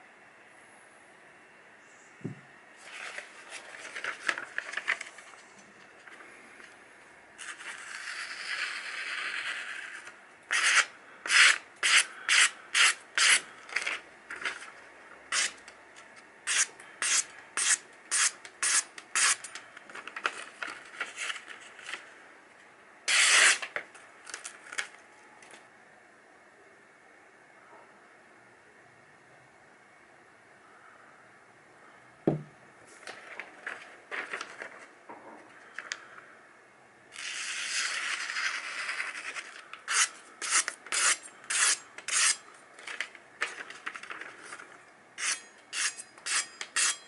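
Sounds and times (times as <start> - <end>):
knife slicing paper: 7.4 - 14.6, 16.5 - 19.6, 23.1 - 23.7, 37.1 - 42.4
paper hissing: 7.4 - 14.7, 23.1 - 23.7, 37.1 - 42.4.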